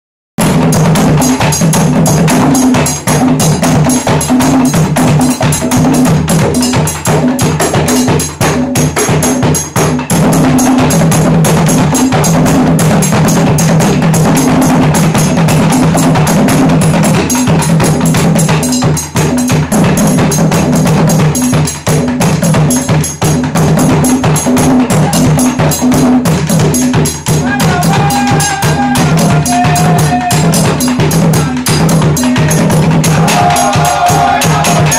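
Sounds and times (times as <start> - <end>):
hand drums playing: 0.4 - 34.9
person singing: 27.4 - 34.9.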